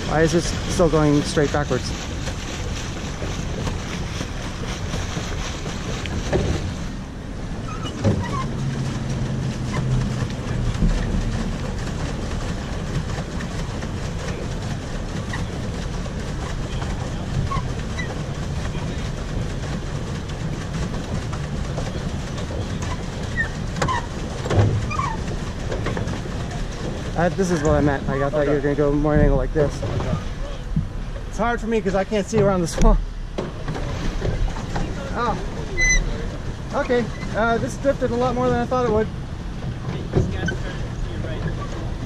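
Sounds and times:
paddle wheel churning water: 0.0 - 42.0.

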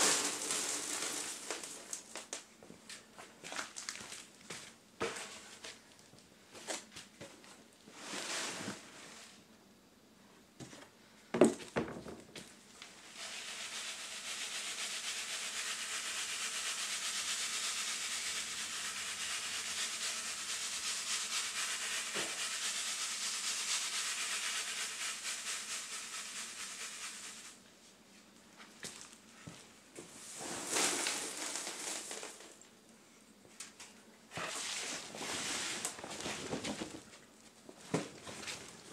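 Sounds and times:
charcoal rustling in shaken sieve: 0.0 - 2.4, 7.9 - 9.4, 12.8 - 27.6, 28.8 - 32.6, 34.3 - 37.2.

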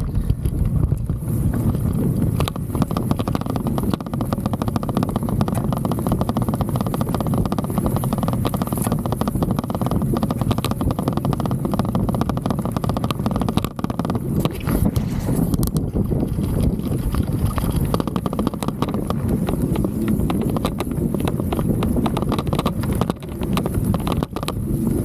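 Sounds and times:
bike rolling over rough ground: 0.0 - 25.0.

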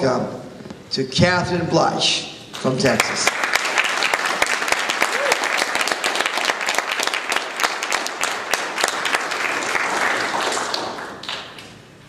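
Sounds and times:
audience applauding: 2.9 - 11.8.

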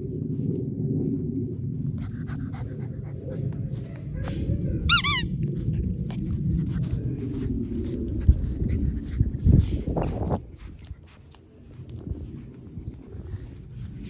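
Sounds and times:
steady low rumble: 0.0 - 14.0
puppy yelping: 4.9 - 5.3.

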